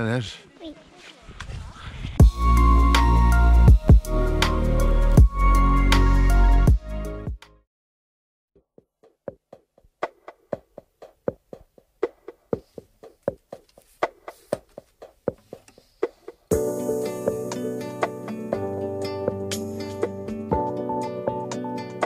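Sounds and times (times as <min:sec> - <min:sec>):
full music track: 0:02.2 - 0:07.6, 0:16.0 - 0:22.0
music: 0:02.2 - 0:07.6, 0:16.0 - 0:22.0
knocking percussion beat: 0:03.7 - 0:04.2, 0:08.7 - 0:16.7.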